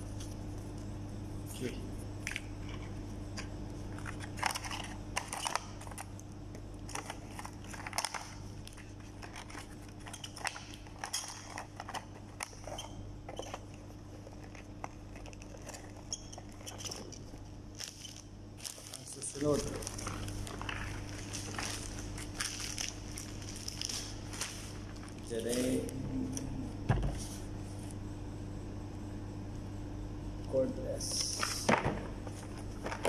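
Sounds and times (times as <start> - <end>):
steady low hum: 0.0 - 33.0
hands handling plastic packaging: 2.2 - 25.9, 32.2 - 33.0.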